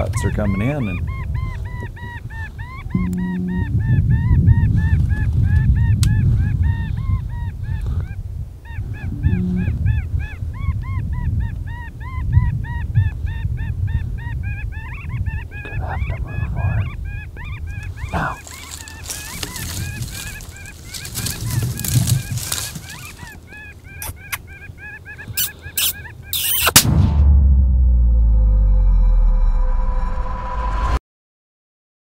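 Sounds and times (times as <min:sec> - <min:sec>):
geese honking: 0:00.0 - 0:07.5, 0:08.7 - 0:11.0, 0:11.7 - 0:26.8
wind rumble on microphone: 0:00.0 - 0:23.4.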